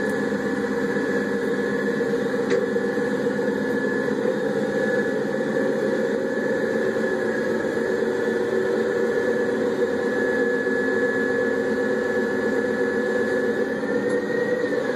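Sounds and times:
high engine whine: 0:00.0 - 0:14.9.

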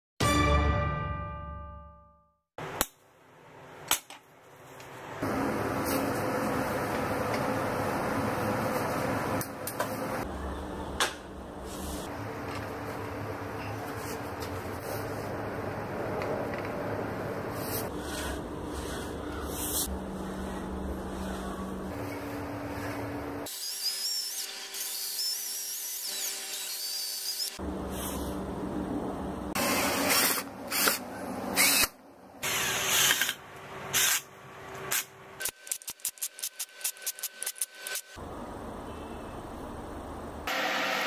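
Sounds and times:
drill driving screws into wood: 0:31.6 - 0:33.4.

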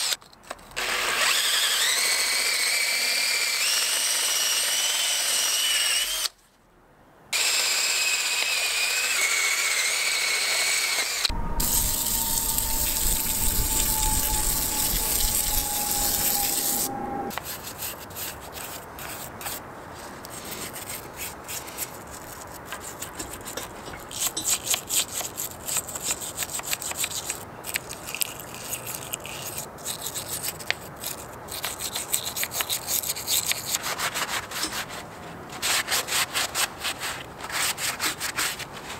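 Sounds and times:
cordless drill brush whine: 0:07.4 - 0:17.4.

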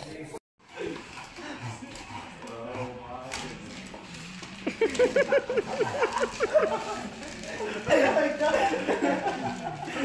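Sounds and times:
person laughing: 0:04.6 - 0:10.0.

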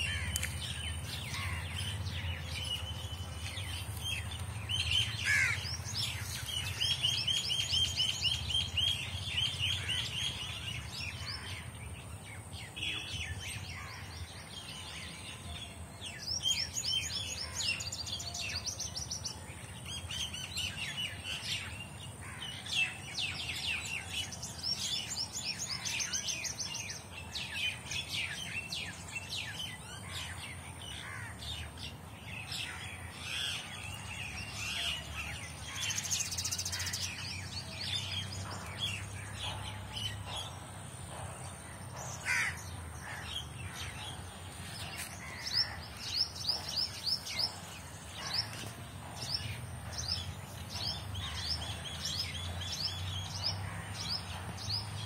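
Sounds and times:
songbirds chirping: 0:00.0 - 0:55.0.

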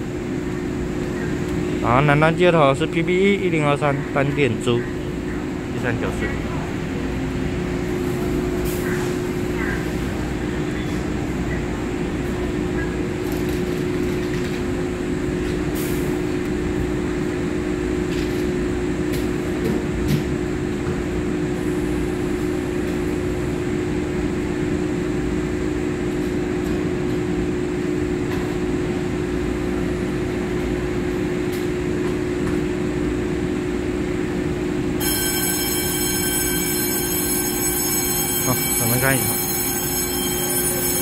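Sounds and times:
train equipment humming: 0:33.2 - 0:41.0.

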